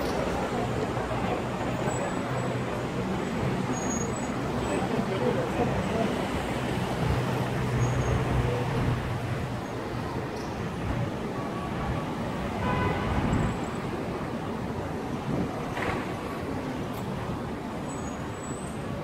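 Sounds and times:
passing cars: 0.0s - 19.0s.

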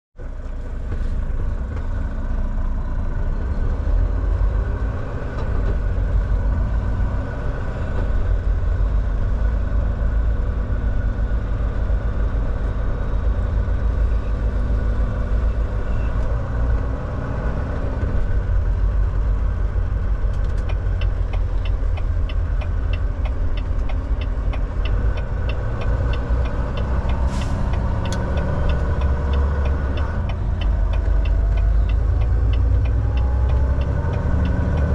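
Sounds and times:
truck diesel engine rumble: 0.2s - 34.9s
regular ticking: 20.4s - 34.9s.

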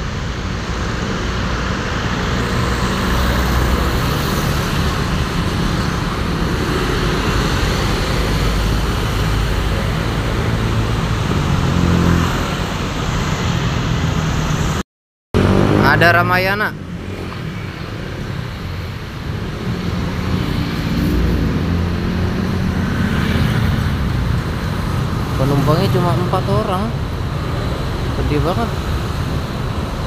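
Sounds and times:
engine and tyre noise: 0.0s - 30.0s
motorcycles driving past: 15.4s - 30.0s.

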